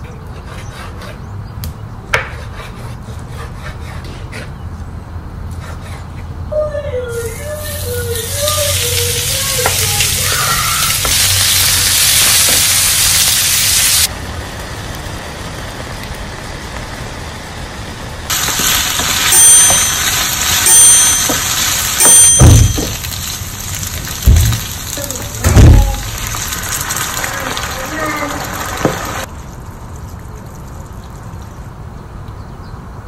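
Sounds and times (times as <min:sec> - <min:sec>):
meat sizzling in frying pan: 0:07.6 - 0:17.7, 0:18.3 - 0:29.3.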